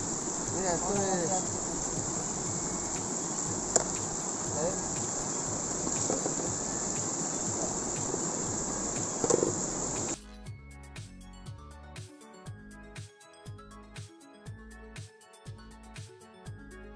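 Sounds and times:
stream rushing over rocks: 0.0 - 10.2.

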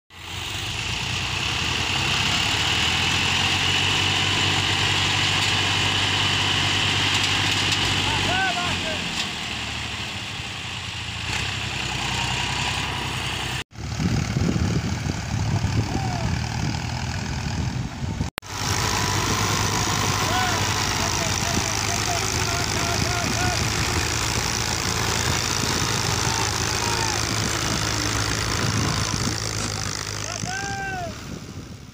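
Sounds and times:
tractor diesel engine straining: 0.1 - 31.9
tyres spinning in dirt: 18.6 - 31.4.

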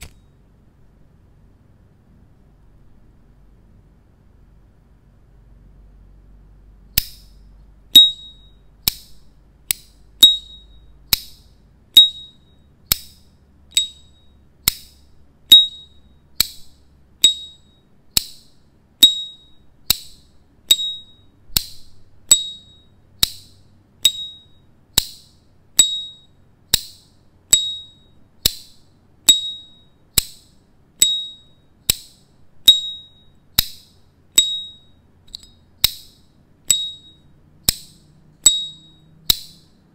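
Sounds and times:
lighter ringing ping: 7.9 - 11.4, 29.3 - 30.4, 31.0 - 33.8, 36.7 - 39.7.

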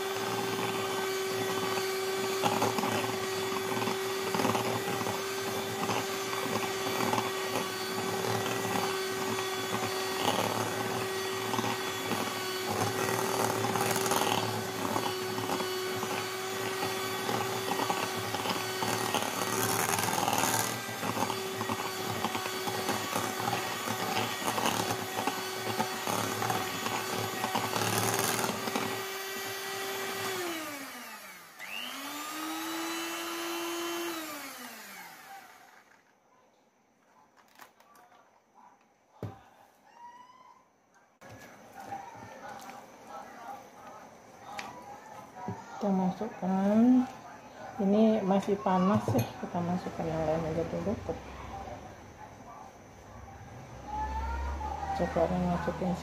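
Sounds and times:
electric hand mixer running: 0.0 - 36.0, 45.4 - 51.2, 53.9 - 56.0.

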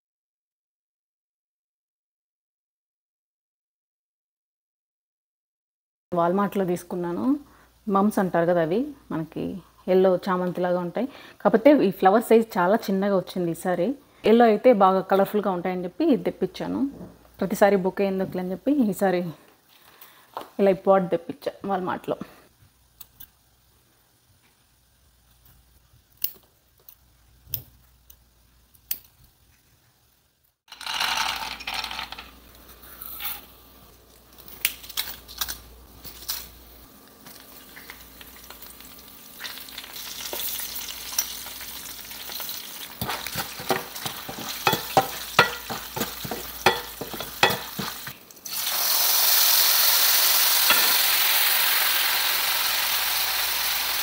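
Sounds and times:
loud steady sizzle: 22.5 - 30.6, 32.4 - 54.0
food sizzling in oil: 32.8 - 54.0
spoon stirring and clinking: 43.0 - 48.1.

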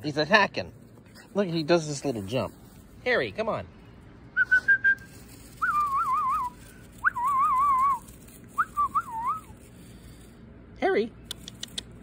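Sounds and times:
person whistling: 4.4 - 8.0, 8.6 - 9.5.

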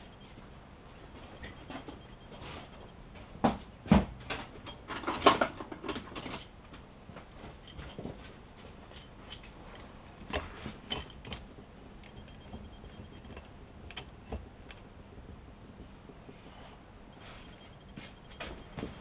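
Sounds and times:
metal tools clattering: 4.3 - 6.6, 7.4 - 9.7.

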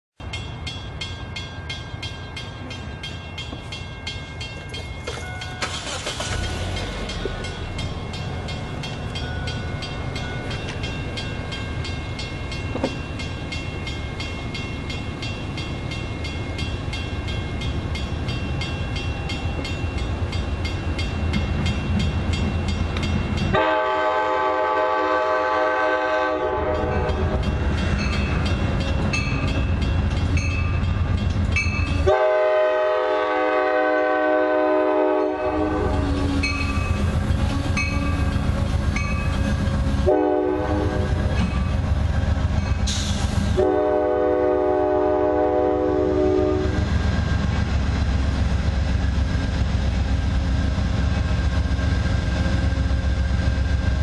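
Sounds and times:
train rumble approaching: 0.2 - 54.0
train horn chord: 23.5 - 27.3, 31.9 - 36.5, 40.0 - 41.2, 43.5 - 46.8.

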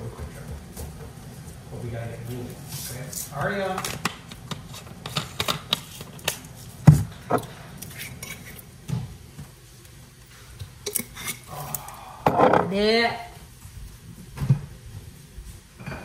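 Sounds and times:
utensils clicking and knocking: 3.6 - 6.5.

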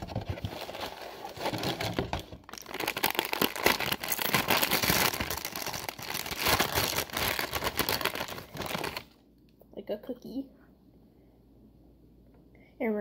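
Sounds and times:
plastic bag crinkling: 0.0 - 9.2.

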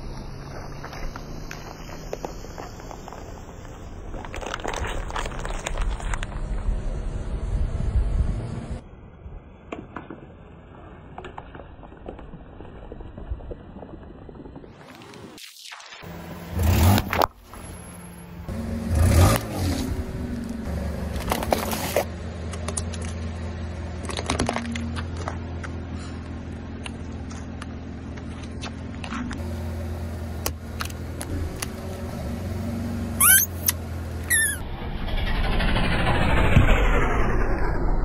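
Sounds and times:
car engine running low: 0.0 - 14.8, 16.1 - 38.0
tyre crushing objects on asphalt: 0.3 - 6.5
short squeaks: 33.2 - 34.7.

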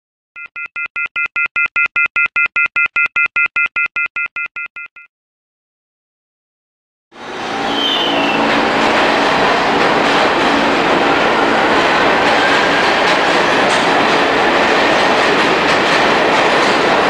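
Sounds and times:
subway train rumbling: 7.1 - 17.0.

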